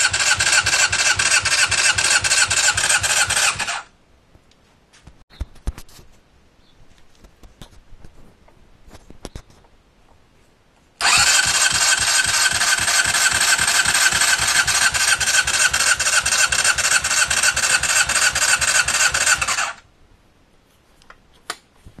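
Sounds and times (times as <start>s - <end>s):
motorcycle engine cranking: 0.0s - 3.9s, 11.0s - 19.8s.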